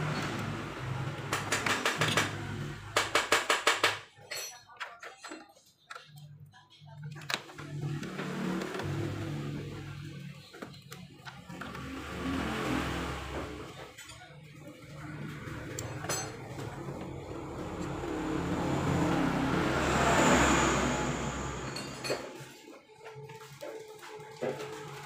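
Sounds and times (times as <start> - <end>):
rushing noise: 17.4 - 22.3.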